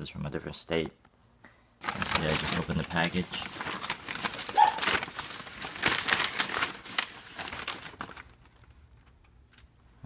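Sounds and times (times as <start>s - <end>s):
plastic bag and tissue paper crinkling: 1.8s - 9.7s.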